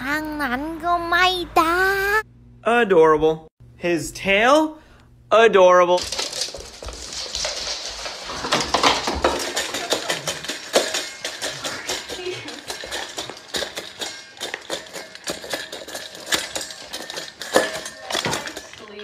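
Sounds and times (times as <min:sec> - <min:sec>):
dog eating from metal bowl: 0:06.0 - 0:19.0.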